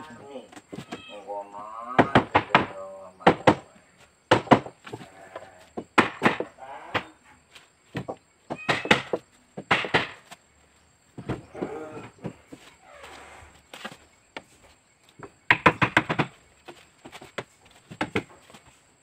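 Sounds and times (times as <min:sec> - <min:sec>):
hammering on wooden planks: 0:01.9 - 0:07.2, 0:07.9 - 0:10.4, 0:15.1 - 0:18.4.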